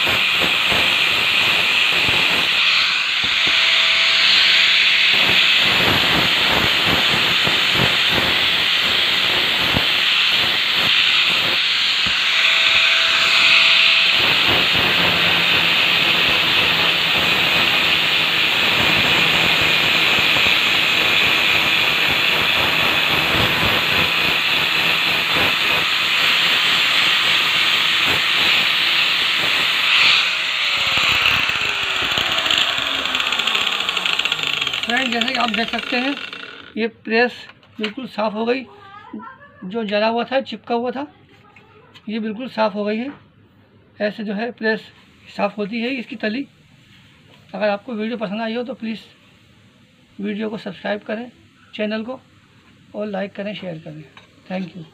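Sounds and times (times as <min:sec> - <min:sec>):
angle grinder sanding metal: 0:00.0 - 0:36.8
grinder winding down: 0:00.0 - 0:36.8.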